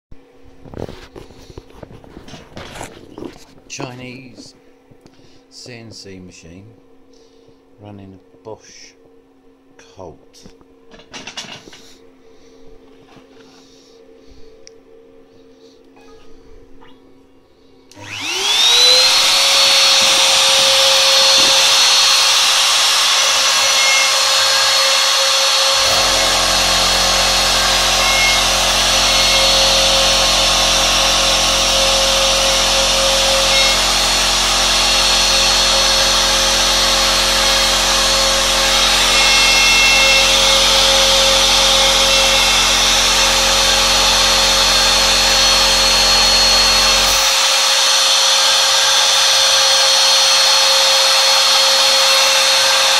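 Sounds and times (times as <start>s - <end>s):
lower hum: 0.2s - 47.3s
router whining: 17.9s - 52.9s.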